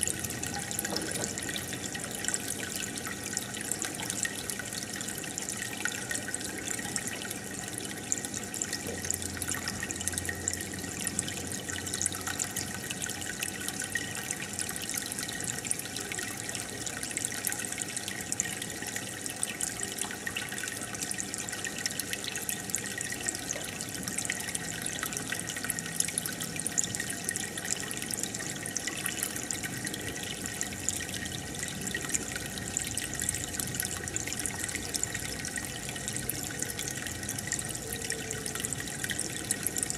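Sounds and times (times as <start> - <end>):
aquarium filter trickling: 0.0 - 39.9.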